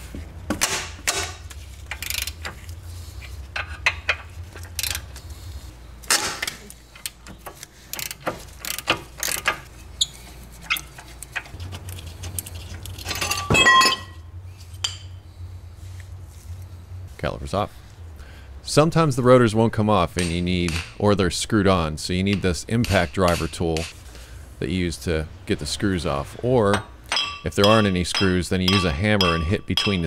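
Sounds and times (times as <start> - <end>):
metal parts clinking: 1.2 - 2.8, 3.5 - 5.2, 6.1 - 9.7, 10.6 - 14.2
wrench clicking: 1.9 - 2.6, 3.6 - 5.1, 7.0 - 9.6.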